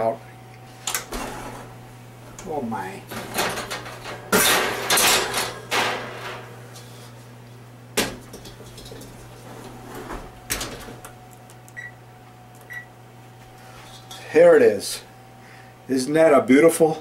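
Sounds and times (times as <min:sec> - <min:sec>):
oven rack clattering and scraping: 0:00.8 - 0:07.1, 0:08.0 - 0:11.1.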